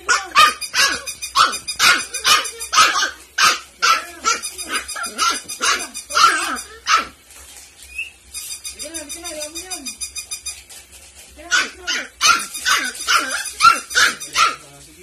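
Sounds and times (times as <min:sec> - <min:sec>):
puppy yapping: 0:00.0 - 0:07.2, 0:11.5 - 0:14.7.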